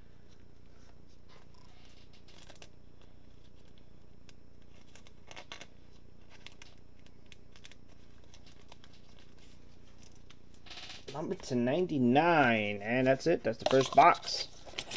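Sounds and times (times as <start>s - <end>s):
steady low hum: 0.0s - 14.9s
rustling of card packaging: 0.2s - 10.6s, 12.5s - 14.9s.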